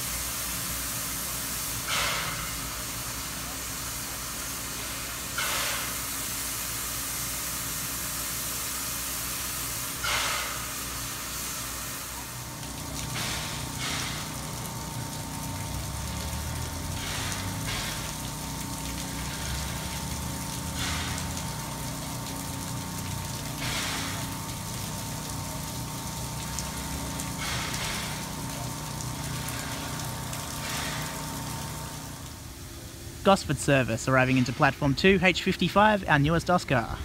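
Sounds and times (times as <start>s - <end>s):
steam hissing: 0.0s - 22.0s, 23.6s - 32.2s
steam locomotive low hum: 0.0s - 37.0s.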